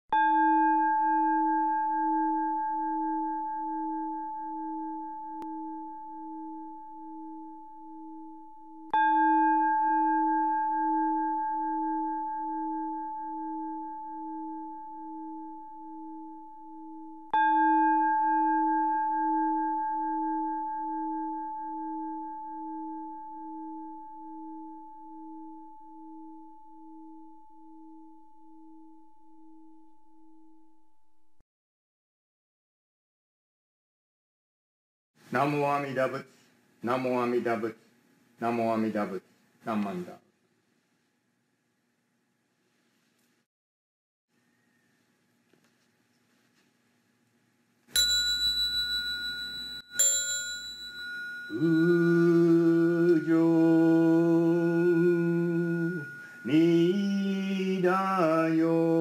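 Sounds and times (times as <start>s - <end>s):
bowl bell ringing: 0.1s - 30.8s, 47.9s - 59.0s.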